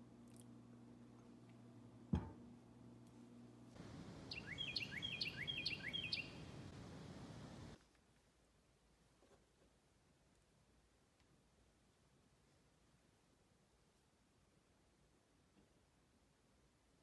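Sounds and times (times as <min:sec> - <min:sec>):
songbird whistling: 0:04.3 - 0:06.5.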